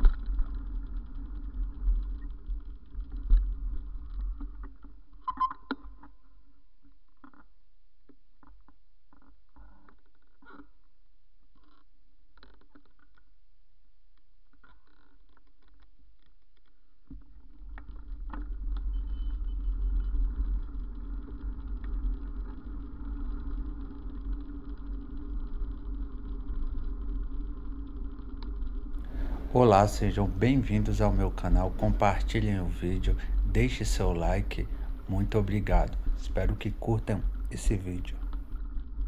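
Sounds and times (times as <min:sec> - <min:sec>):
faint ticks: 0:00.0 - 0:06.2, 0:14.1 - 0:29.6, 0:34.5 - 0:39.0
wind and road noise rumble: 0:19.6 - 0:39.0.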